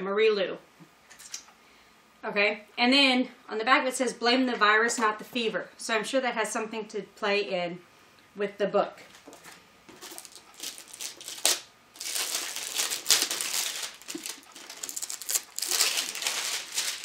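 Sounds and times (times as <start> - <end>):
plastic wrapping crinkling: 9.2 - 17.0.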